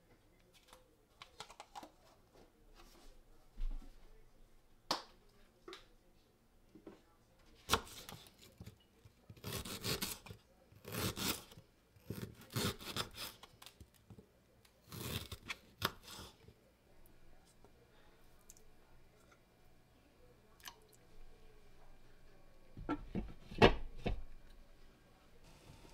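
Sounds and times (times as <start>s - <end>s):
knife rasping through ginger: 9.3s - 13.5s.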